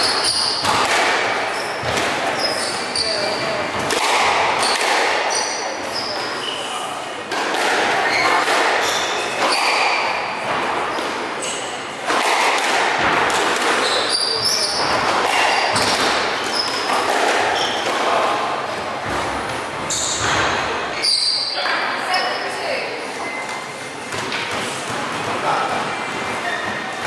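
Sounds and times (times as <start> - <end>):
squash ball knocks: 14.7 - 18.1.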